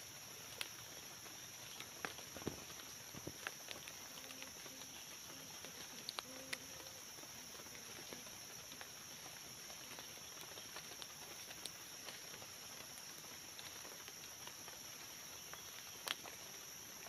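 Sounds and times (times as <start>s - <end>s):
forest insects droning: 0.0s - 17.0s
rustling of dry leaves and sticks: 0.0s - 17.0s
twig clicks: 15.7s - 16.3s.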